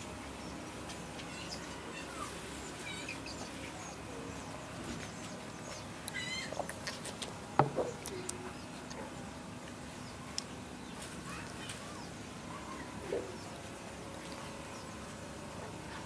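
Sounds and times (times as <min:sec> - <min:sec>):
high gliding animal calls: 0:05.6 - 0:06.8.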